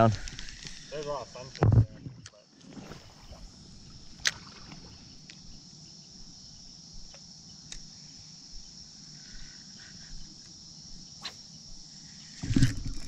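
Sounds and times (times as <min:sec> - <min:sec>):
insects singing: 0:00.0 - 0:13.0
faint clicks: 0:07.1 - 0:07.9.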